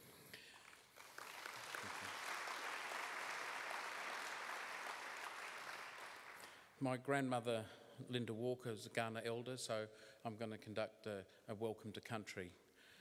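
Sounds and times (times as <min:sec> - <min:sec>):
audience applauding: 0:00.5 - 0:06.6.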